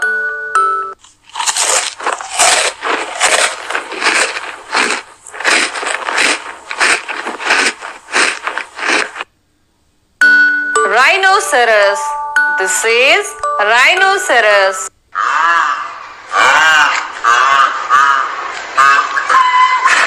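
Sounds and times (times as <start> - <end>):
rough scraping and rustling: 1.4 - 9.3.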